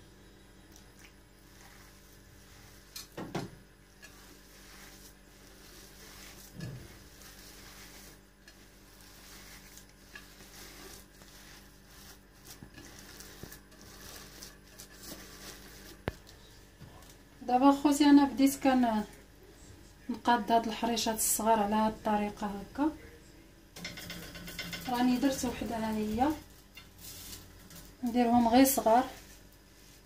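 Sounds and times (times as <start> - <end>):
hands rubbing grains in bowl: 1.4 - 19.1, 24.2 - 30.0.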